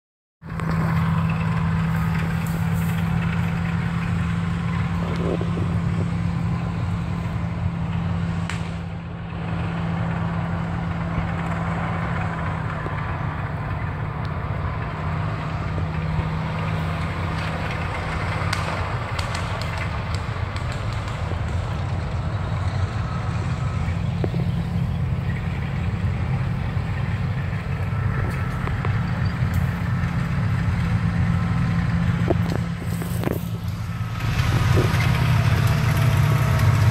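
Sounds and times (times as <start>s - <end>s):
vehicle engine humming: 0.4s - 36.9s.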